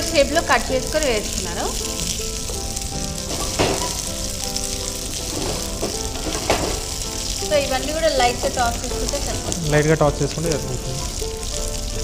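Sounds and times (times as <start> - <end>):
vegetables sizzling in oil: 0.0 - 12.0
spatula scraping pan: 5.2 - 7.0.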